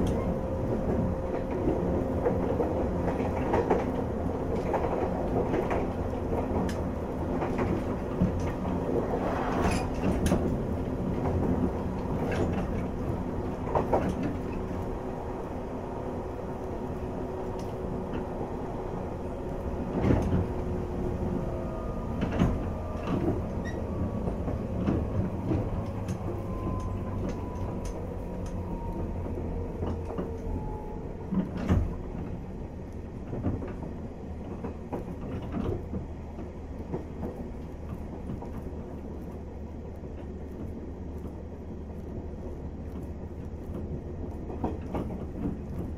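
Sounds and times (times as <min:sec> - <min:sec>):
low train rumble: 0:00.0 - 0:45.9.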